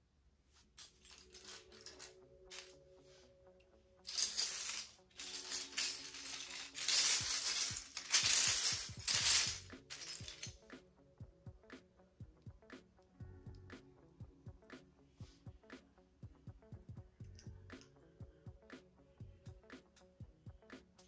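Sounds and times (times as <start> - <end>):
soft background music: 0.0 - 21.0
plastic bricks clattering: 0.8 - 2.7, 4.1 - 10.5.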